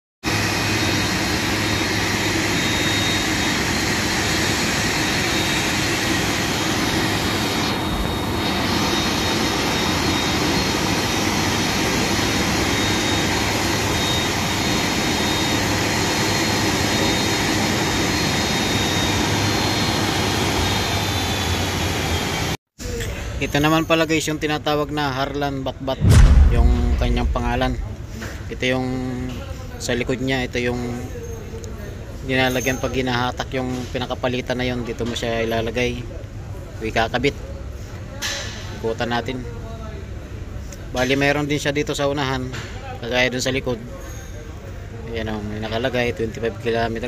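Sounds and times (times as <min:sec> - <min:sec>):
jet turbine running: 0:00.3 - 0:22.6, 0:26.0 - 0:28.5.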